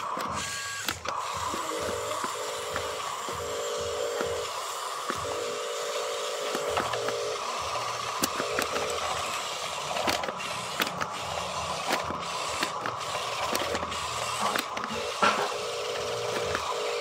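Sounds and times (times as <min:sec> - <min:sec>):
toy electric motors whirring: 0:00.0 - 0:17.0
gear clicks and ticks: 0:06.4 - 0:15.2.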